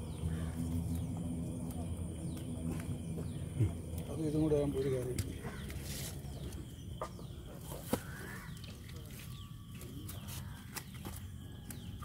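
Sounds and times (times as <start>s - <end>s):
faint bird calls: 4.8s - 11.1s.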